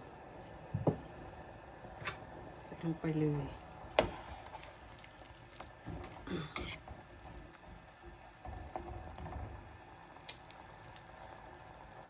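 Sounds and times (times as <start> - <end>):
ladle stirring boiling curry: 3.9 - 9.6.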